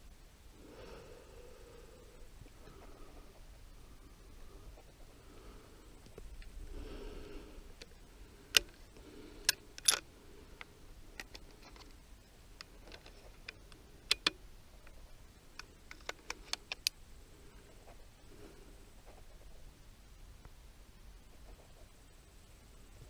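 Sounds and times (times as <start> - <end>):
rifle handling clicks and taps: 9.5 - 10.0, 12.6 - 14.4, 15.6 - 17.0.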